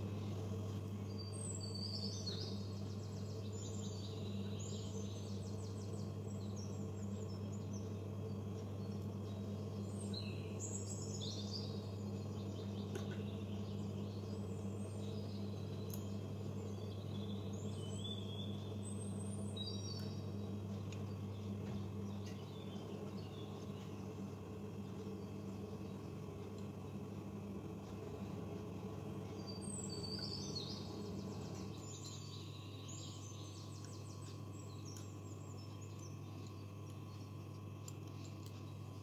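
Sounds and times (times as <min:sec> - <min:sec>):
steady low hum: 0:00.0 - 0:39.0
bird chirping and trilling: 0:01.1 - 0:20.6, 0:29.3 - 0:37.3.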